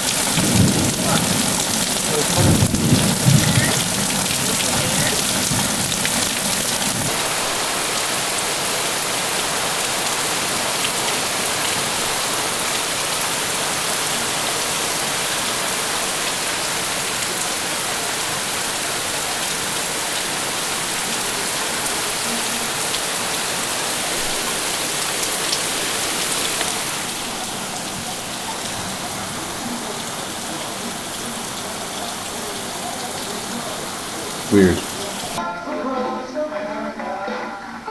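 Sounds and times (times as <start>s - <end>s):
low thunder rumble: 0.0s - 7.1s
heavy rain pouring: 0.0s - 37.9s.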